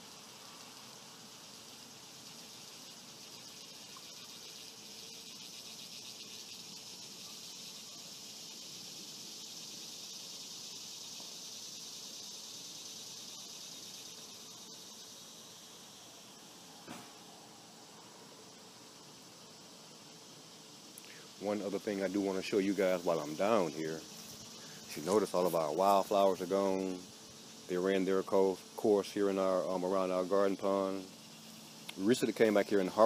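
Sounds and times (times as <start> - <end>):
insect chorus buzzing: 0.0 - 33.0.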